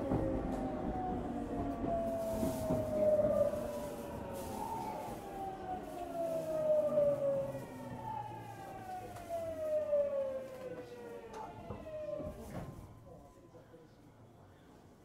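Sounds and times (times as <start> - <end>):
train inverter whining: 0.0 - 13.2.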